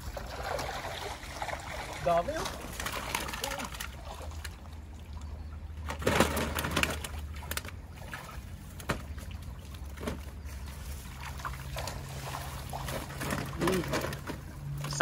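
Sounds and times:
sharp knocks and rustles: 5.8s - 15.0s.

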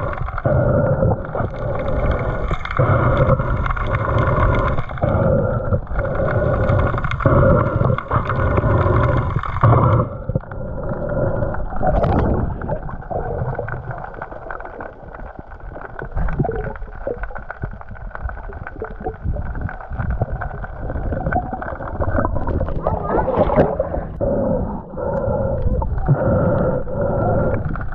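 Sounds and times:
underwater sloshing and splashing: 0.0s - 27.9s.

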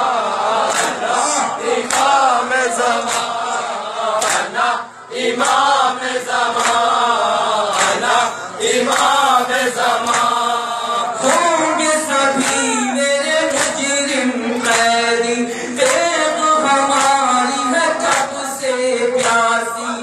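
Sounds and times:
group of men chanting: 0.0s - 20.0s
man chanting into a microphone: 7.9s - 20.0s.

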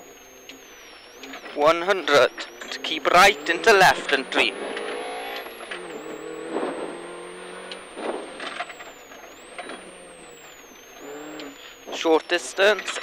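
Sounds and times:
rally car engine from inside: 0.0s - 13.0s
car knocking over surface: 4.7s - 6.9s, 8.0s - 9.0s.

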